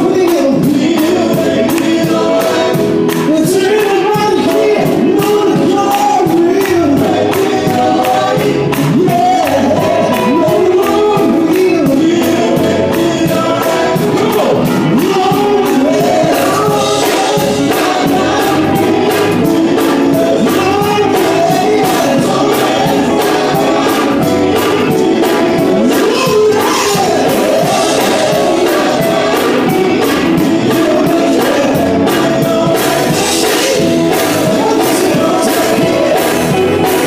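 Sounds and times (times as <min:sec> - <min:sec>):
male vocal group singing: 0:00.0 - 0:37.0
steady beat: 0:00.0 - 0:37.0.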